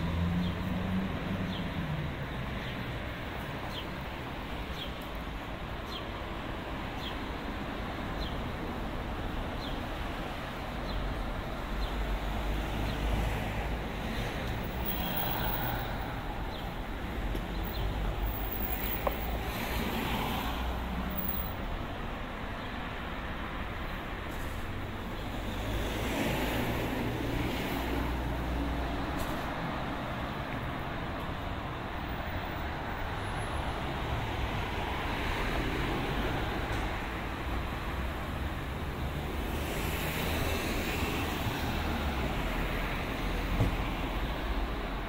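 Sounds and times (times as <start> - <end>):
road traffic hum: 0.0 - 45.0.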